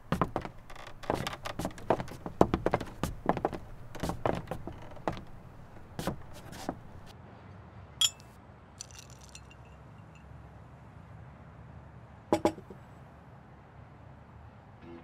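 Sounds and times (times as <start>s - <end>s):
glassware clinking: 8.0s - 9.8s.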